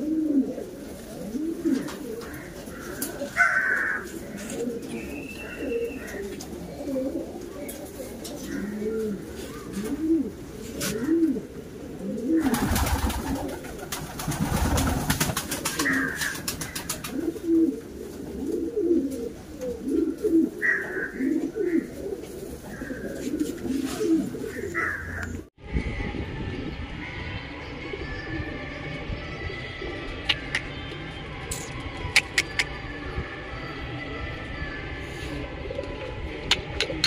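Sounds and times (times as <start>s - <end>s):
pigeons cooing: 0.0s - 25.5s, 29.6s - 30.9s, 31.6s - 33.0s.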